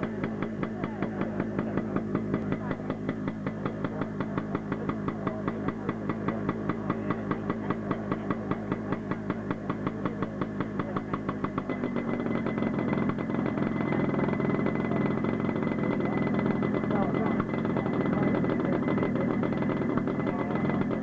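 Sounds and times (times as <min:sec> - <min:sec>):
helicopter engine running: 0:00.0 - 0:21.0
rotor thumping: 0:00.0 - 0:21.0.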